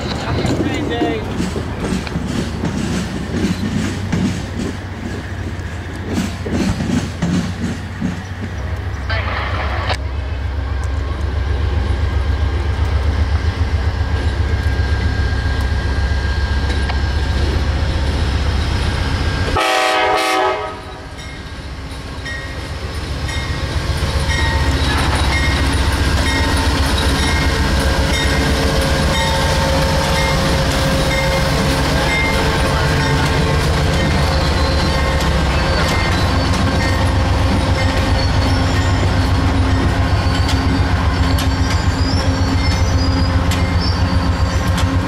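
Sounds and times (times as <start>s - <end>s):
train wheels clattering on rails: 0.0s - 10.0s, 20.7s - 45.0s
train horn blast: 19.6s - 21.1s.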